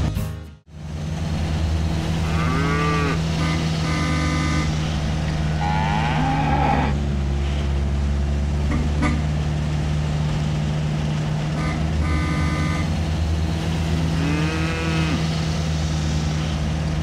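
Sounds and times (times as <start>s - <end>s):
low engine hum: 0.0s - 17.0s
cattle mooing: 2.2s - 4.9s, 5.5s - 7.0s, 14.2s - 15.2s.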